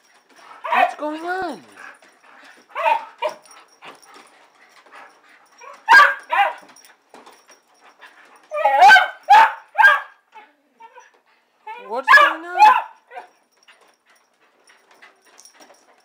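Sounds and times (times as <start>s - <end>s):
dog whining and yipping: 5.5s - 6.8s, 8.4s - 13.4s.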